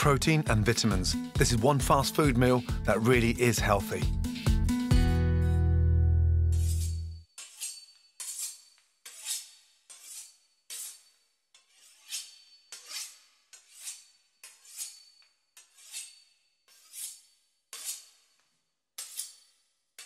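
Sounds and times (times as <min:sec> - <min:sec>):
knife sawing through pastry crust: 0:06.5 - 0:18.4.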